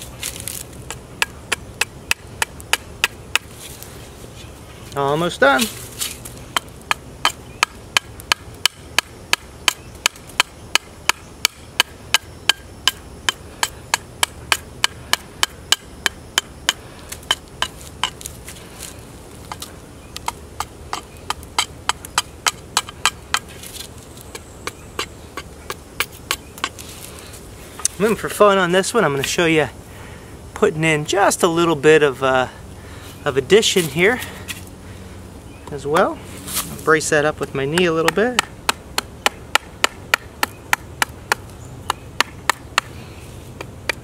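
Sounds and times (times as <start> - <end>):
knife chopping wood: 0.2 - 3.6, 5.5 - 18.3, 19.4 - 26.8, 37.7 - 43.0, 43.6 - 44.0.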